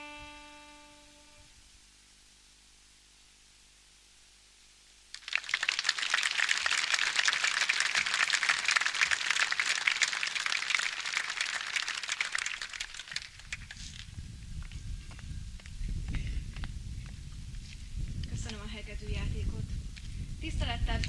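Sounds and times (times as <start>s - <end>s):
audience applauding: 5.1s - 14.1s.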